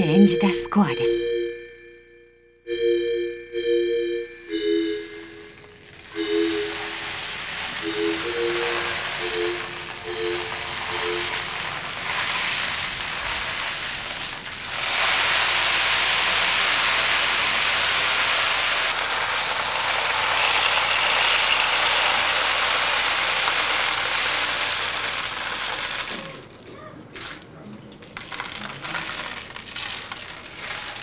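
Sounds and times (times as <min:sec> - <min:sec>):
dried beans pouring: 0:05.7 - 0:26.6, 0:28.2 - 0:31.0.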